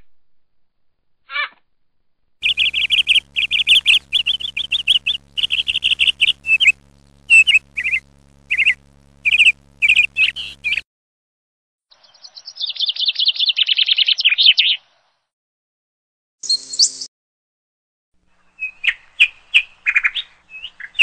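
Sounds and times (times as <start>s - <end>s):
faint steady hum: 2.4s - 10.8s
house martins chirruping: 2.4s - 10.8s.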